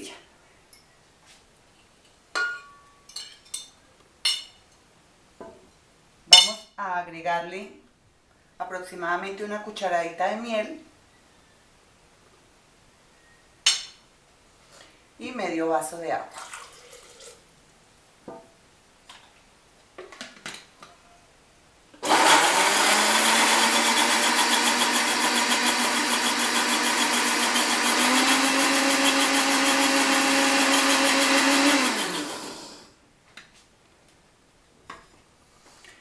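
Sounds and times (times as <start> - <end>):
blender running: 22.0 - 32.9.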